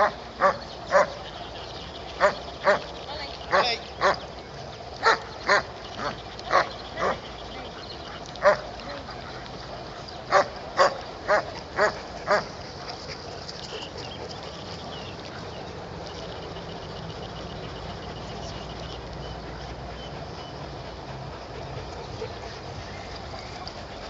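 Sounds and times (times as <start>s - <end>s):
dog barking: 10.3s - 12.4s.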